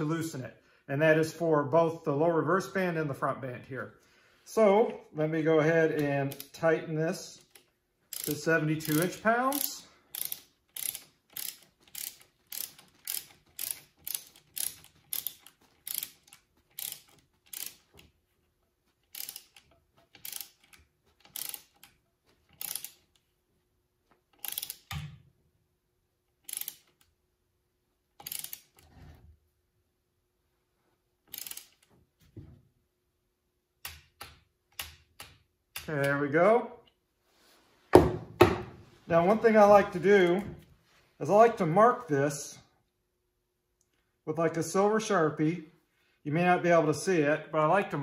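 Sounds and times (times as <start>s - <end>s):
ratchet wrench clicking: 6.0s - 6.6s, 7.3s - 18.1s, 19.0s - 23.3s, 24.3s - 25.0s, 26.4s - 27.1s, 28.2s - 28.9s, 31.3s - 31.9s.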